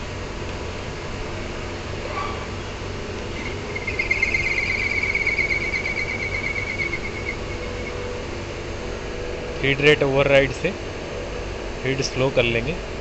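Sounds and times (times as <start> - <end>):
lathe humming: 2.7 - 11.5
lathe cutting whine: 2.8 - 11.5.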